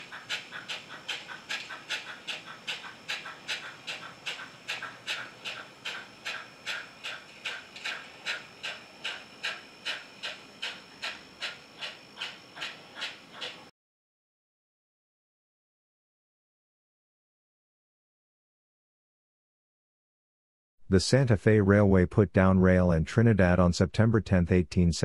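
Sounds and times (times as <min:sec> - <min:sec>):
model steam locomotive chuffing: 0:00.0 - 0:13.7.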